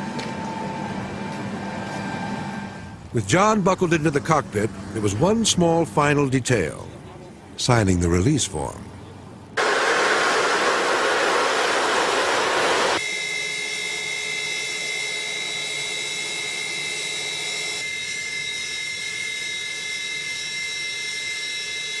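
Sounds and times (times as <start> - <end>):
jet engine high whine: 0.0 - 7.6, 8.9 - 22.0
jet engine rushing: 9.6 - 17.9.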